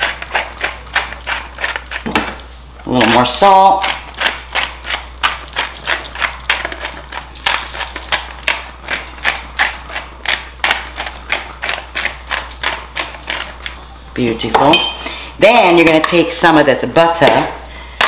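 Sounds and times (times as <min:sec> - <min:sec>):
salt grinder crunching salt: 0:00.0 - 0:14.2.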